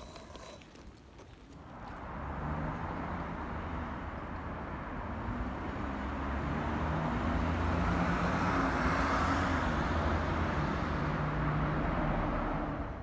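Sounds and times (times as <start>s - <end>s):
vehicle passing by: 1.7s - 13.0s.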